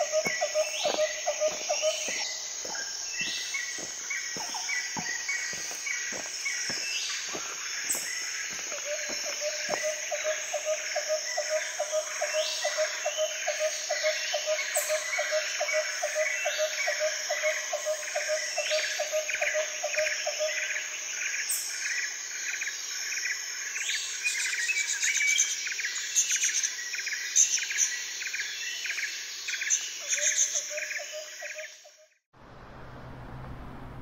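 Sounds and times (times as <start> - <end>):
birds chirping: 0.0 - 10.6
insects trilling: 0.0 - 32.0.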